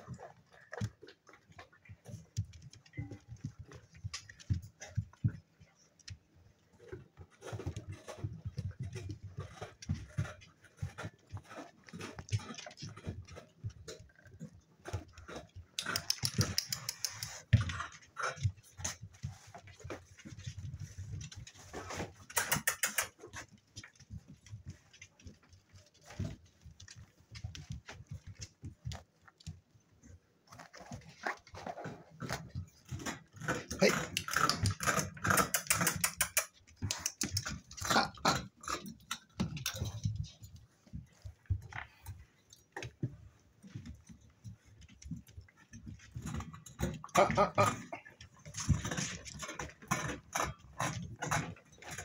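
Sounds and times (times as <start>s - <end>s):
puppies scuffling on hard floor: 0.0s - 52.0s.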